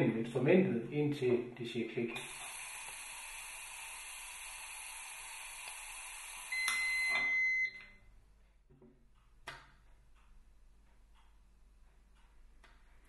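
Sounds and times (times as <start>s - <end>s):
gas hissing from cylinder: 2.2s - 6.7s
high beep: 6.5s - 7.9s.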